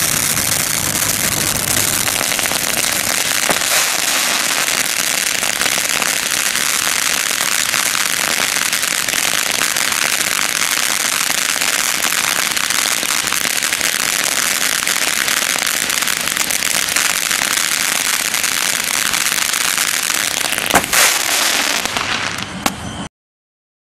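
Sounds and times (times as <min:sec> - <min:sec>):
firework hissing and crackling: 0:00.0 - 0:22.7
sharp firework burst: 0:00.0 - 0:23.1.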